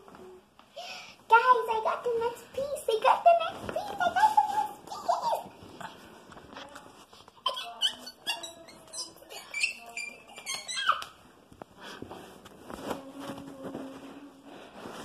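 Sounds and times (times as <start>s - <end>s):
girl giggling and squealing: 7.4s - 11.2s.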